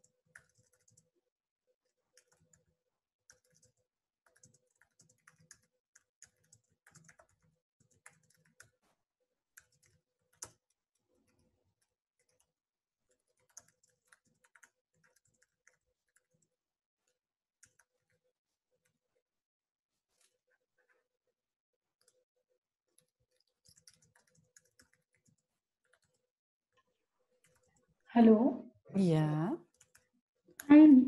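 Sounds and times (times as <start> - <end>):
faint keyboard typing: 0.0 - 1.1, 1.8 - 8.9, 9.5 - 18.2, 22.0 - 22.2, 22.9 - 28.1, 29.4 - 31.0.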